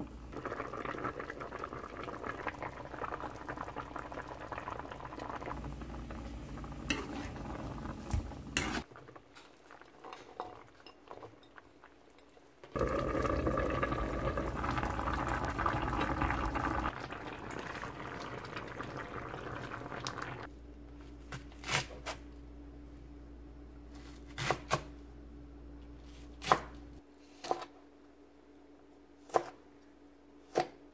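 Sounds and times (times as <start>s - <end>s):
stew bubbling in a pan: 0.0s - 20.5s.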